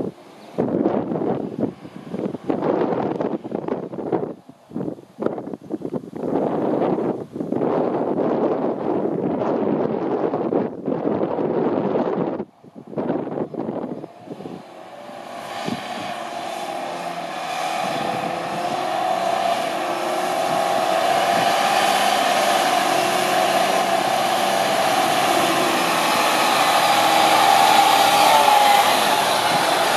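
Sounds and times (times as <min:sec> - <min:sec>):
diesel truck engine approaching: 0:00.0 - 0:29.9
wavering whine: 0:12.9 - 0:29.9.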